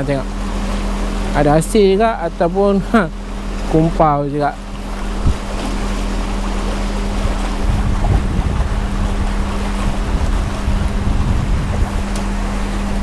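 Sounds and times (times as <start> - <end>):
choppy water lapping: 0.0 - 13.0
steady low hum: 0.0 - 13.0
wind buffeting microphone: 4.7 - 13.0.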